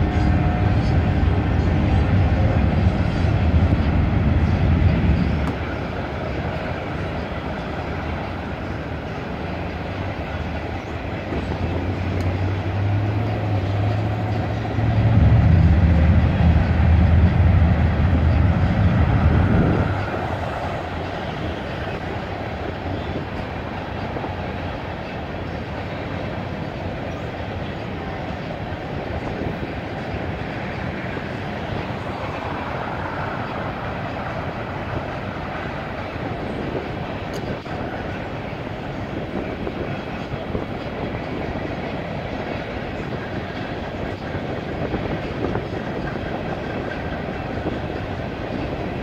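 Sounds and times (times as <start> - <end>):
freight train cars rolling past: 0.0 - 49.0
loud low engine drone: 0.0 - 49.0
train wheel clatter: 0.0 - 49.0.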